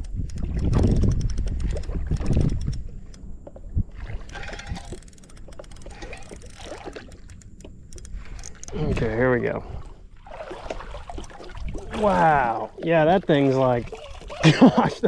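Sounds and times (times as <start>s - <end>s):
wind rumbling on microphone: 0.0s - 12.8s
water sloshing around a kayak: 0.2s - 15.0s.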